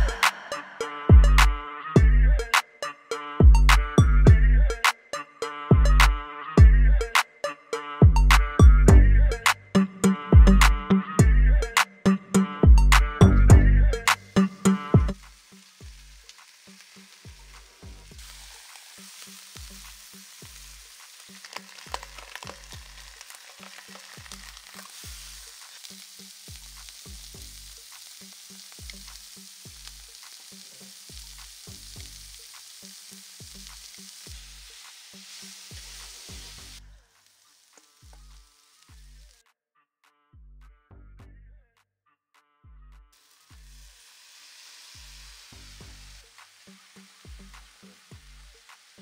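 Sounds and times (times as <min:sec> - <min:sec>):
pork sizzling on a griddle: 0:14.0 - 0:39.4, 0:43.2 - 0:49.0
fat popping: 0:20.9 - 0:25.7.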